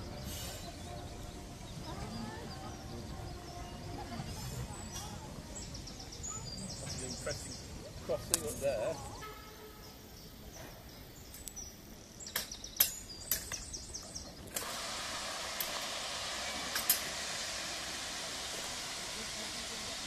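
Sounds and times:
steam hissing from locomotive: 0.0 - 7.2, 14.6 - 20.0.

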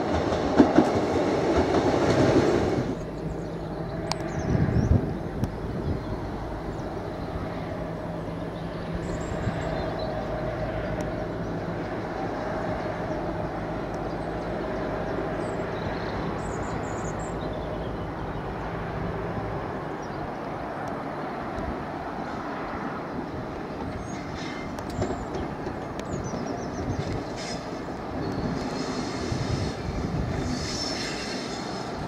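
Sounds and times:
diesel locomotive engine hum: 0.0 - 32.0.

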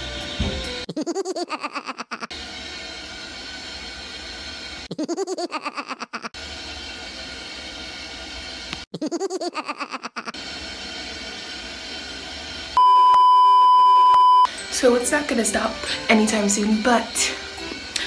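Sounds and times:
loud steady beep tone: 12.8 - 14.5.

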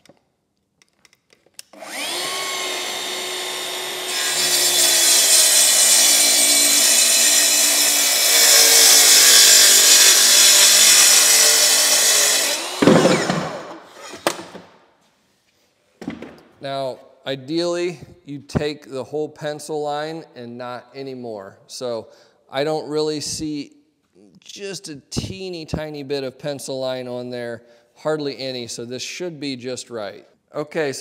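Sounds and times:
circular saw cutting wood: 1.8 - 14.4
saw knock and clicks: 2.6 - 14.7.

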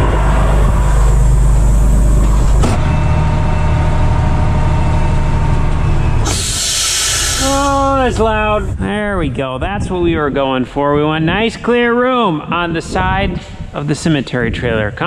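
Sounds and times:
diesel engine running: 0.0 - 10.3
air brake hiss: 6.2 - 7.9.

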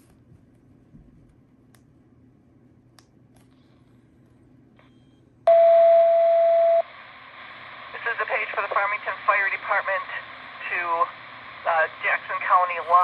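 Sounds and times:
steady electronic beep: 5.5 - 6.9
radio receiver hiss: 6.7 - 13.0.

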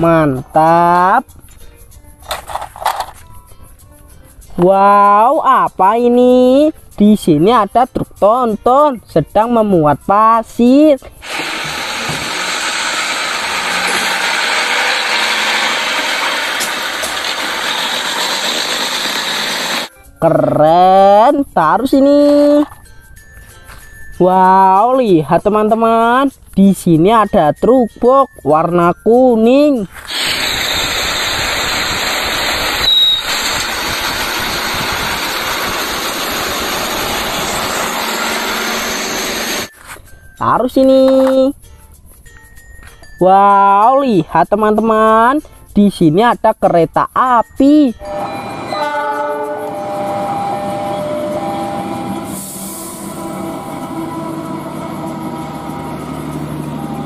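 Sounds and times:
road and traffic noise: 11.3 - 19.9, 48.0 - 57.0
diesel truck driving past: 49.6 - 57.0.

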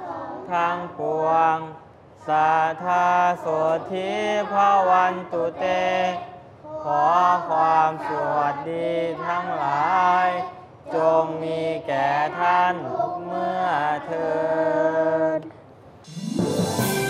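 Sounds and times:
boys chanting together: 0.0 - 15.4
instrumental music: 16.1 - 17.0.

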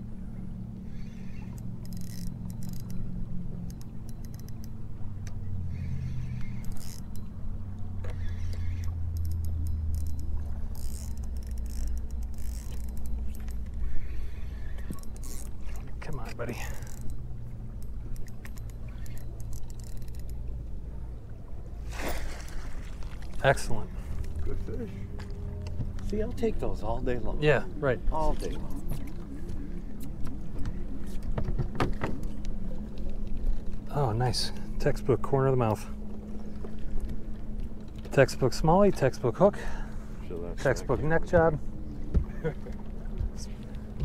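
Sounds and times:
trolling motor humming: 0.0 - 44.0
fishing reel clicking: 0.9 - 3.0, 3.7 - 4.8, 6.0 - 7.3, 8.0 - 15.6, 16.5 - 17.2, 17.8 - 20.4
fish splashing in water: 21.8 - 23.4.

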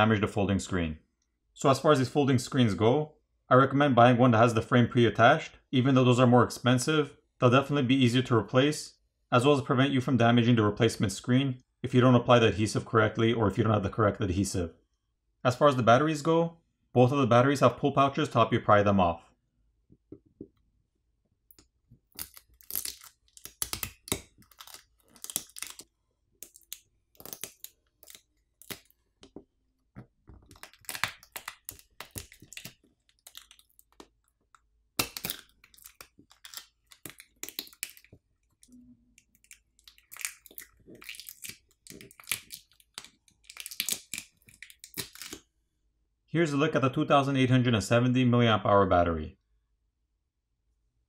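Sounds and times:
adhesive tabs crackling and tearing: 21.5 - 29.4, 30.0 - 45.4.

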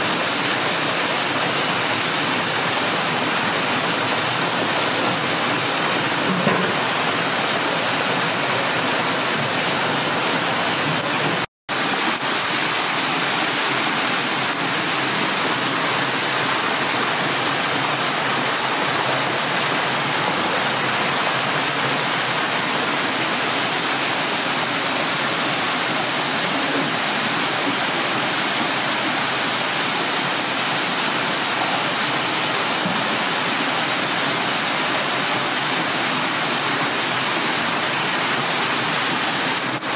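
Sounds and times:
water rushing through hoses: 0.0 - 39.9.

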